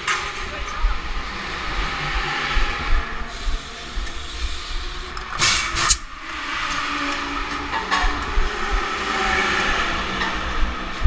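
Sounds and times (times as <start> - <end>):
busy garage din: 0.0 - 11.0
loud hissing bursts: 3.3 - 6.0.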